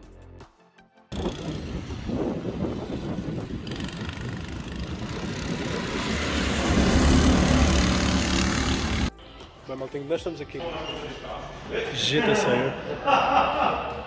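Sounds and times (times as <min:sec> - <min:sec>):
go-kart engines running: 0:01.1 - 0:09.1.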